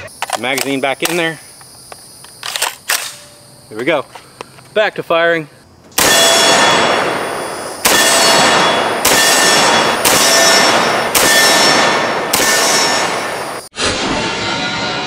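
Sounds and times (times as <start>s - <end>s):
rifle shots: 2.4s - 3.3s, 6.0s - 13.6s
steel target ringing: 7.8s - 13.7s.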